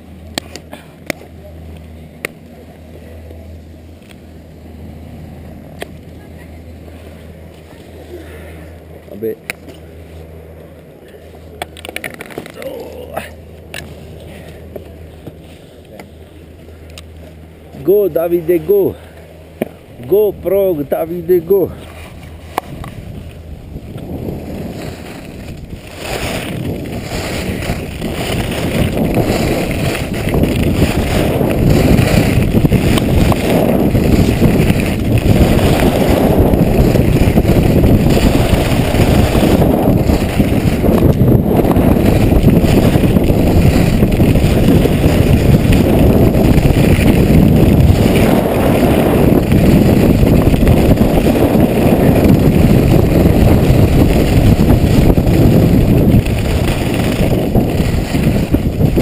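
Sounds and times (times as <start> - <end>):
skis sliding over snow: 0.3 - 59.0
wind on camera microphone: 16.7 - 59.0.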